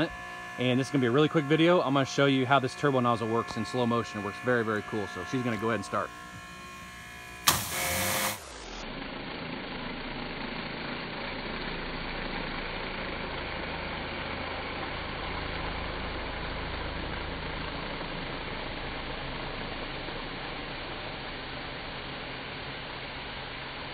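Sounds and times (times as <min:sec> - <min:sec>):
low hum: 0:00.0 - 0:14.4
pressure washer pump and spray: 0:00.0 - 0:23.9
pressure washer click: 0:07.4 - 0:08.4.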